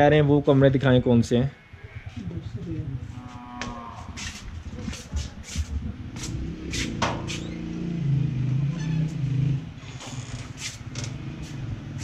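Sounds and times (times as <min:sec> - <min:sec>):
footsteps on concrete: 0:03.2 - 0:07.4.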